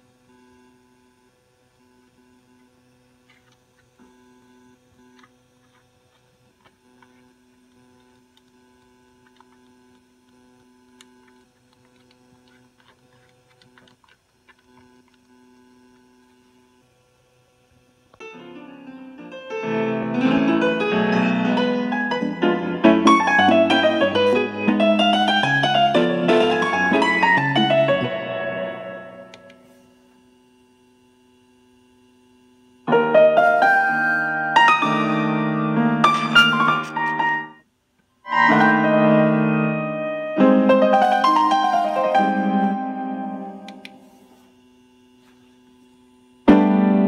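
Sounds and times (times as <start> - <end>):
keyboard-like synth music from speaker: 18.2 - 29.6, 32.9 - 37.6, 38.3 - 44.1
button clicks: 43.5 - 44.0.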